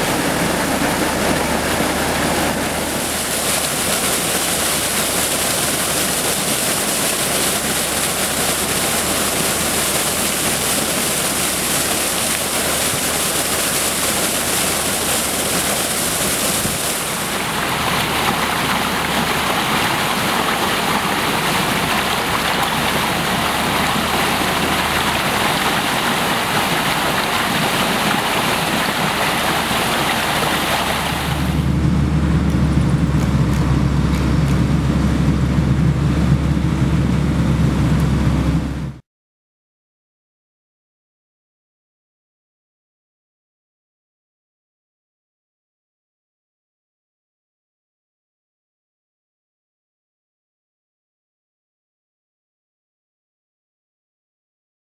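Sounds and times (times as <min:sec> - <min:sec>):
low hum of engines: 0:00.0 - 0:06.3, 0:07.1 - 0:39.0
water gushing from hoses: 0:00.0 - 0:31.8.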